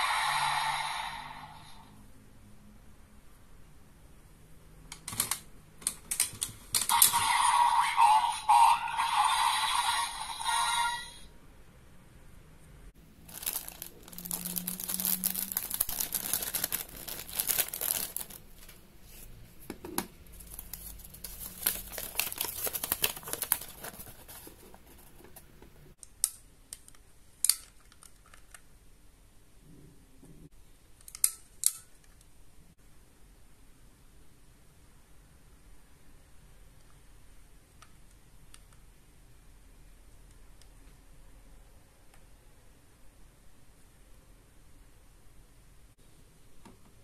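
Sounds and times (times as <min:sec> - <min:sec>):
paper and packaging crinkling: 0:13.2 - 0:19.3, 0:20.3 - 0:25.6.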